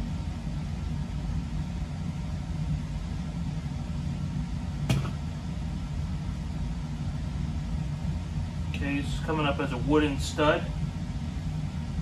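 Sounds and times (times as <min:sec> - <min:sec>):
low room hum: 0:00.0 - 0:12.0
sharp knock: 0:04.9 - 0:05.2.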